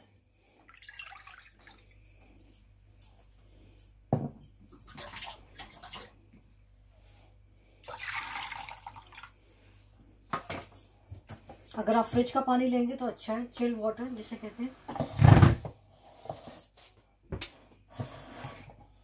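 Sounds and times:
water pouring into ceramic bowl: 0.7s - 2.0s, 7.8s - 9.4s.

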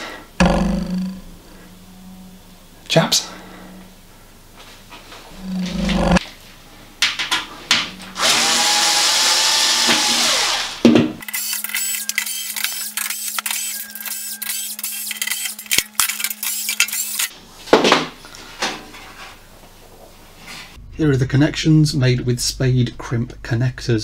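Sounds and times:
low hum: 0.1s - 6.2s
electric screwdriver running: 8.2s - 17.3s.

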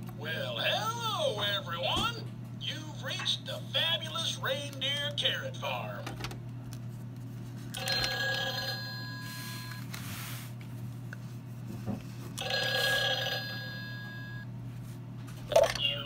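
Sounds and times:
electronic toy telephone ring: 7.8s - 9.8s, 12.4s - 14.4s.

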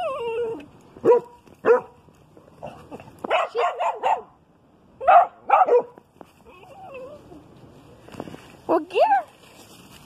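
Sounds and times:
dog barking: 1.0s - 2.0s, 2.6s - 4.4s, 5.0s - 6.0s.

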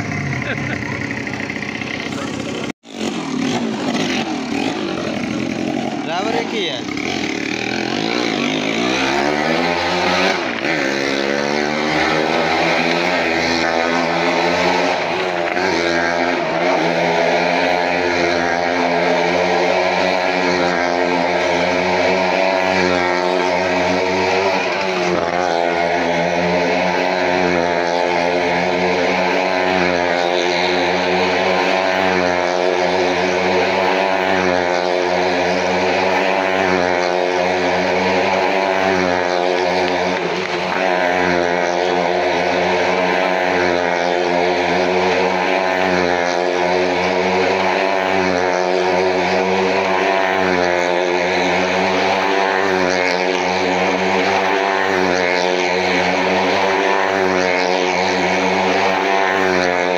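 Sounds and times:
small car engine running: 0.0s - 59.9s.

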